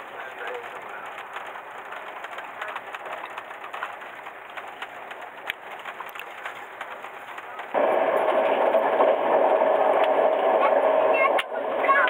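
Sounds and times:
light rattles and clicks: 0.0 - 7.8
train carriage running noise: 0.0 - 12.0.

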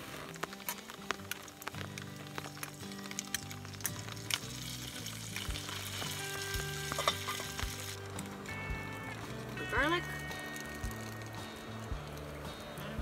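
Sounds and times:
pasta poured into pan: 0.0 - 8.1
small pops of frying: 0.0 - 12.6
butter sizzling in a frying pan: 0.0 - 13.0.

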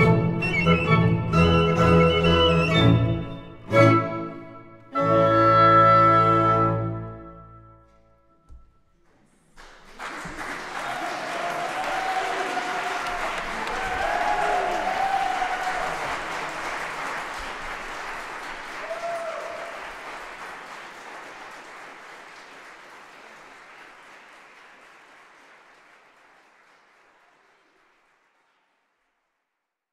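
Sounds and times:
audience applauding: 9.0 - 29.3.

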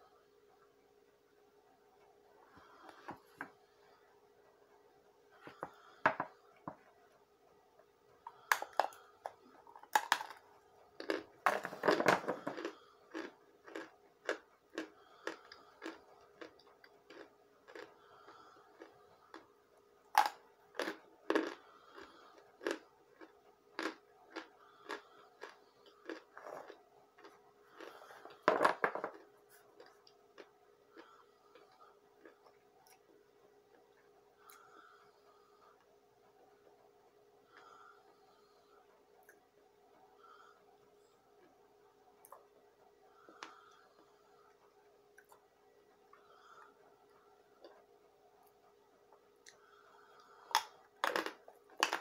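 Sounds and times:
faint steady hum: 0.0 - 52.0
person chewing crunchy chunks: 8.2 - 35.6, 43.2 - 44.4, 49.5 - 52.0.

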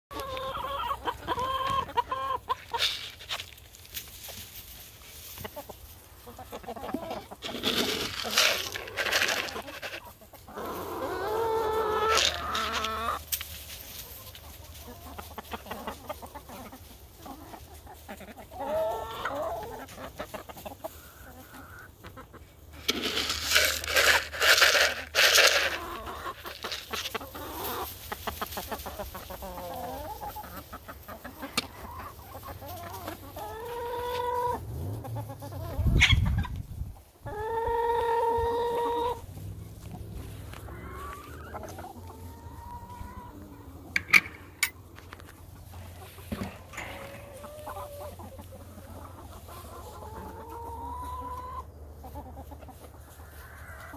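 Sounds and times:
hens clucking: 0.1 - 53.9
grain rattling in plastic tub: 7.4 - 10.1, 22.8 - 27.2.

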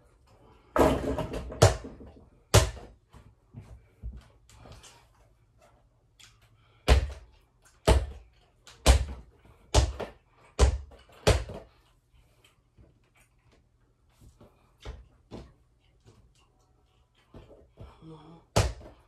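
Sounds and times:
basketball bouncing on wooden floor: 0.8 - 3.0, 6.9 - 7.2, 7.8 - 8.2, 8.8 - 11.6, 17.4 - 19.0.

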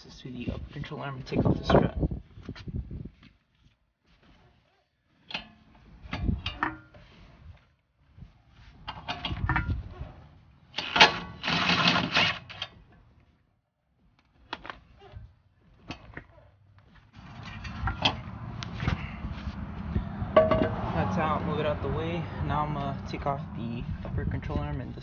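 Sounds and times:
impact wrench hammering: 20.4 - 20.8.

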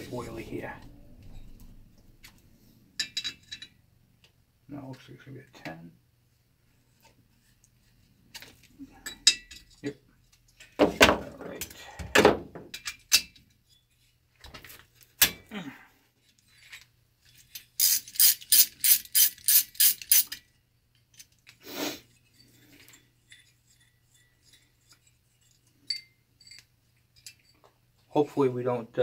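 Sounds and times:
socket ratchet clicking: 17.8 - 20.4.

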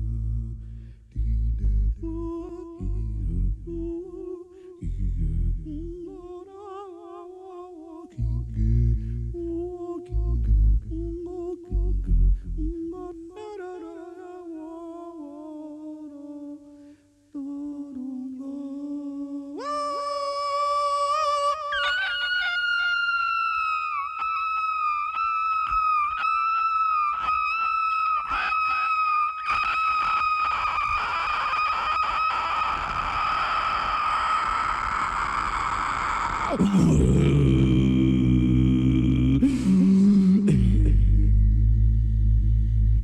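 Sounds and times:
person humming: 0.0 - 16.8, 17.4 - 22.0, 34.9 - 43.0
high bright held vocal tone: 21.3 - 41.8.

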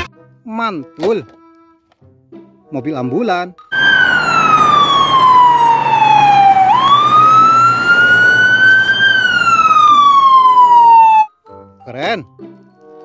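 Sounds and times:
ambulance siren wailing: 3.7 - 11.3.

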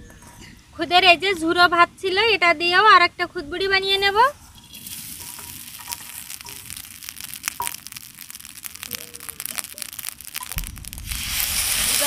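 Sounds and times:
rice crackling in hot pan: 3.9 - 12.0.

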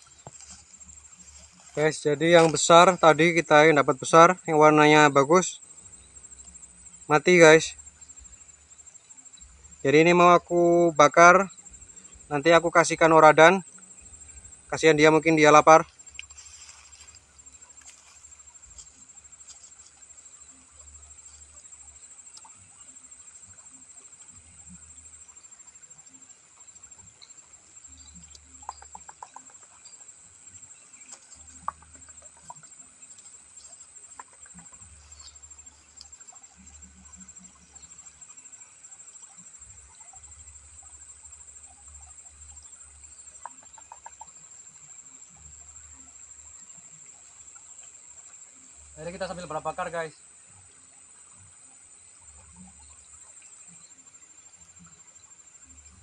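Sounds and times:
dry grass rustling: 0.0 - 2.8, 15.5 - 21.6
high-pitched insect trill: 0.0 - 56.0
low background noise: 0.0 - 56.0
light ticks: 31.0 - 36.3.

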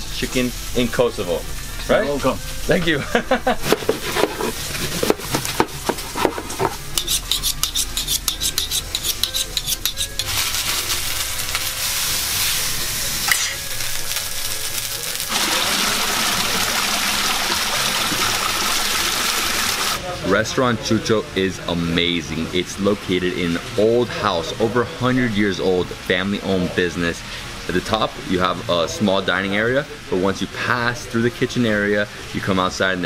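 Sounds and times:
sizzling hiss from oven: 0.0 - 33.0
waterfall splashing into pool: 15.2 - 20.0.

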